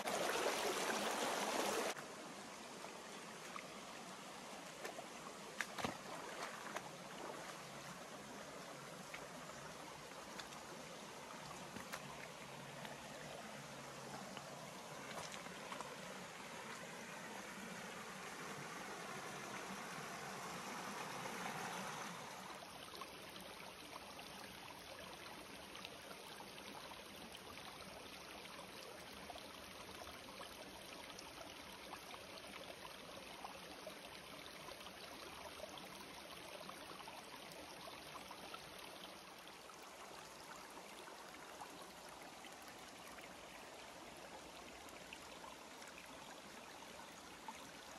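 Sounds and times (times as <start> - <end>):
running water rushing: 0.0 - 23.4.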